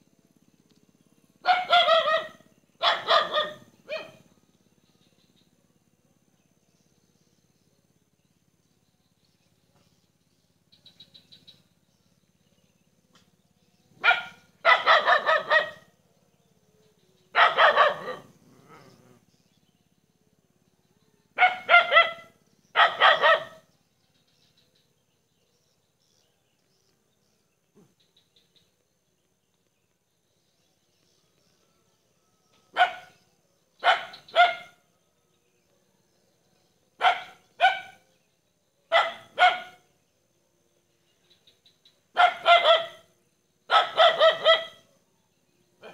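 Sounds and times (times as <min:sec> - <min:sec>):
dog barking: 0:01.4 - 0:04.2, 0:14.0 - 0:15.9, 0:17.3 - 0:18.9, 0:21.4 - 0:23.7, 0:32.7 - 0:33.2, 0:33.8 - 0:34.8, 0:37.0 - 0:38.0, 0:38.9 - 0:39.9, 0:42.1 - 0:43.1, 0:43.7 - 0:44.9.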